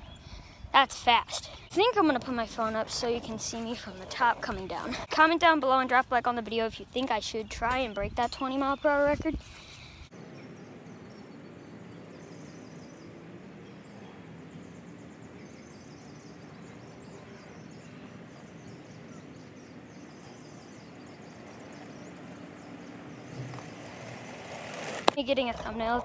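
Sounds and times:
outdoor background noise: 0:00.0 - 0:26.0
birds chirping in trills: 0:06.5 - 0:26.0.

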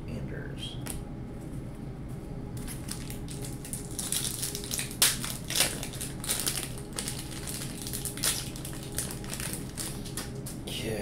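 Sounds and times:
wrapper crinkling and tearing: 0:02.6 - 0:10.6.

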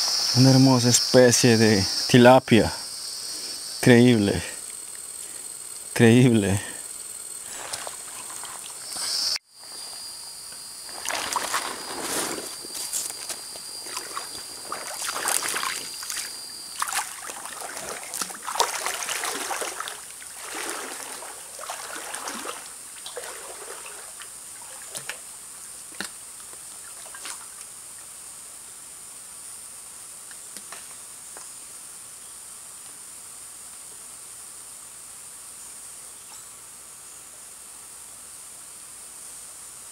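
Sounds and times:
high-pitched insect hum: 0:00.0 - 0:39.9
water sloshing and splashing: 0:07.4 - 0:08.9, 0:10.8 - 0:25.3, 0:26.8 - 0:27.6.

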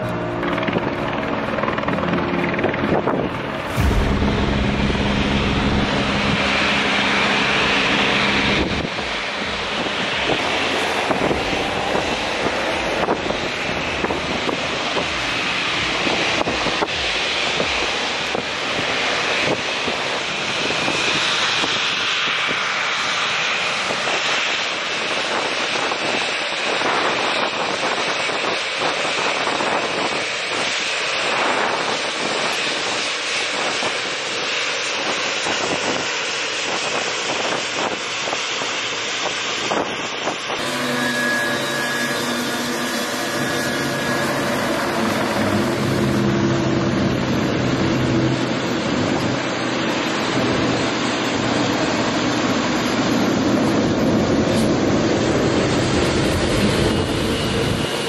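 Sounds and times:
jet engine rumble: 0:00.0 - 0:58.0.

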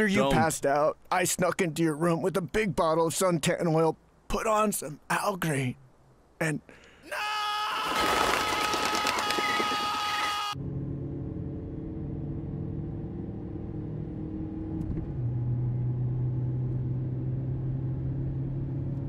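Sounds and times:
car engine humming inside cabin: 0:10.6 - 0:19.0.

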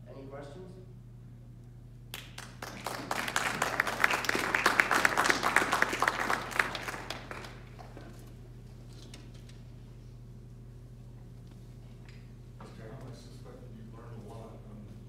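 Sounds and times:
small audience clapping: 0:02.1 - 0:08.2.

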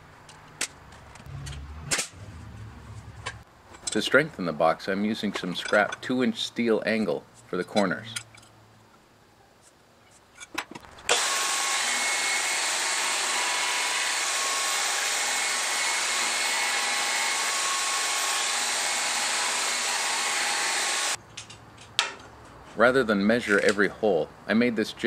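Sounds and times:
bandsaw cutting steel: 0:01.2 - 0:03.4, 0:11.1 - 0:21.2
clicks handling steel: 0:05.3 - 0:06.1, 0:07.0 - 0:08.6.

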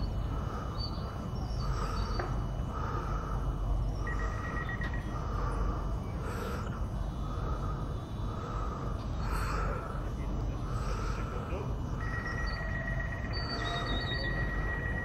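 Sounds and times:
train hum and rumble: 0:00.0 - 0:15.0
soft electronic chirp: 0:03.9 - 0:05.2, 0:11.9 - 0:15.0.

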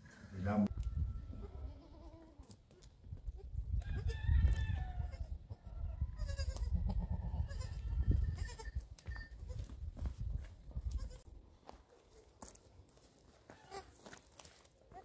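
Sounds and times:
goats bleating: 0:01.4 - 0:02.4.

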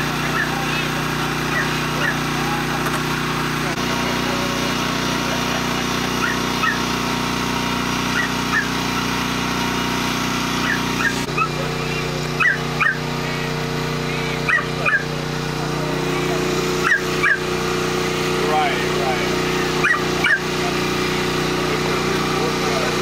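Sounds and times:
engine hum: 0:00.0 - 0:23.0
dogs yipping and whining: 0:00.2 - 0:02.8, 0:05.8 - 0:07.0, 0:08.0 - 0:09.2, 0:10.5 - 0:11.7, 0:12.3 - 0:13.1, 0:14.4 - 0:15.2, 0:16.8 - 0:17.5, 0:19.6 - 0:20.5.

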